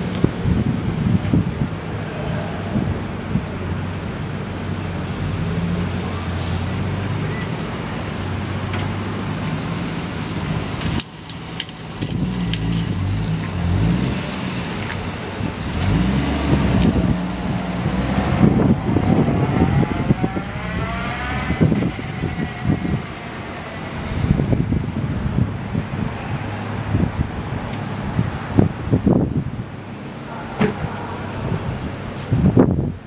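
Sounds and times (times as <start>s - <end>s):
car engine revving: 12.0s - 25.5s
rising whine: 15.8s - 25.3s.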